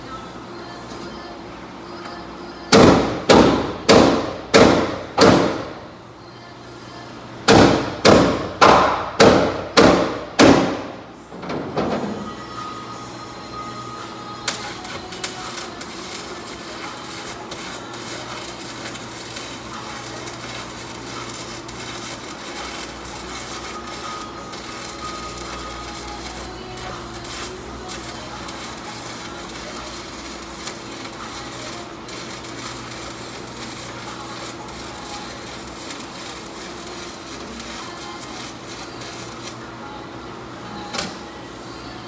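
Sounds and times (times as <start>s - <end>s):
welding arc crackling: 14.4s - 39.6s.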